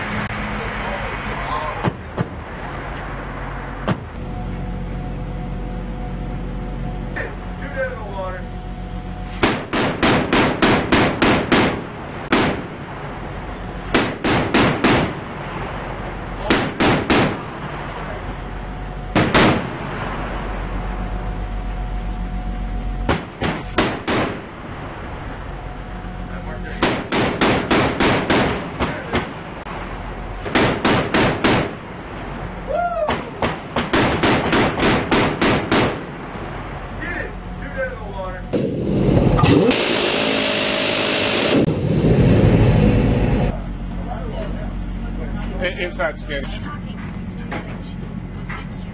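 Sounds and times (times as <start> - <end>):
steady low hum: 0.0 - 48.9
gun firing bursts: 9.4 - 12.7, 13.9 - 15.2, 16.5 - 17.4, 23.1 - 24.4, 26.8 - 28.7, 30.5 - 31.8, 33.8 - 36.0.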